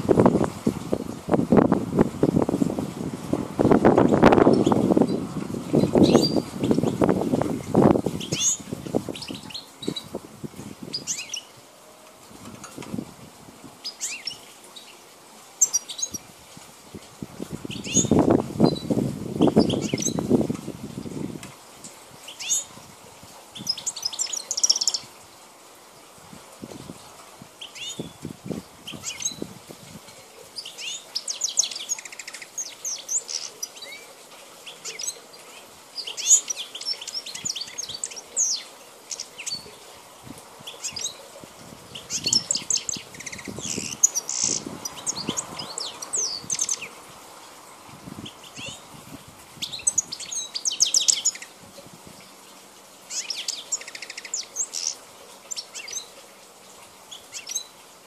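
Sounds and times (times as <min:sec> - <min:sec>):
goldfinch twittering song: 0:04.0 - 0:10.1, 0:10.8 - 0:11.6, 0:13.8 - 0:15.0, 0:15.6 - 0:16.3, 0:17.6 - 0:20.4, 0:21.8 - 0:22.8, 0:23.5 - 0:25.1, 0:27.6 - 0:39.9, 0:40.6 - 0:47.0, 0:48.2 - 0:48.9, 0:49.6 - 0:56.2, 0:57.1 - 0:57.8.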